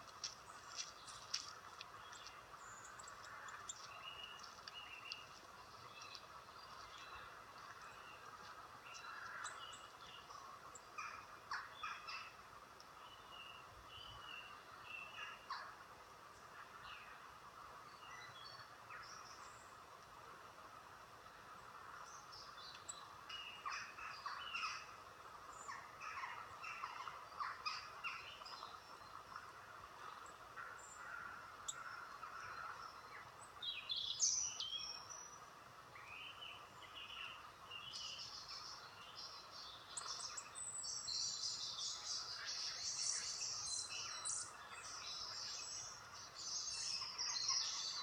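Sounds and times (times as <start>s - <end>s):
recorded birdsong through speaker: 30.1s - 35.4s, 36.0s - 48.0s.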